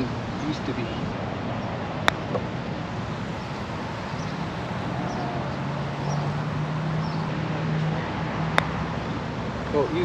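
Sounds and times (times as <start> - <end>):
faint bird chirps: 3.4 - 6.3.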